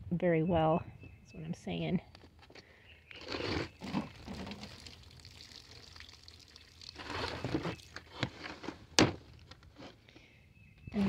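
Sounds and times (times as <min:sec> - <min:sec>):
water trickling and splashing: 0:03.8 - 0:08.3.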